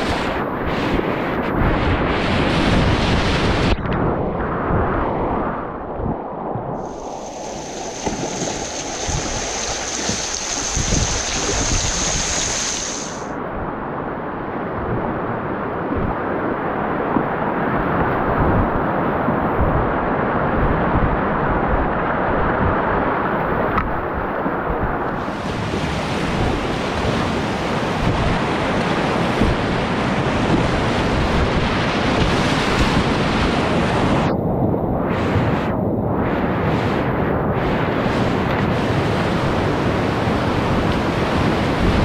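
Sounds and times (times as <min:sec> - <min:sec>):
wind buffeting microphone: 0:00.0 - 0:42.0
whitewater rapids rushing: 0:06.8 - 0:13.3.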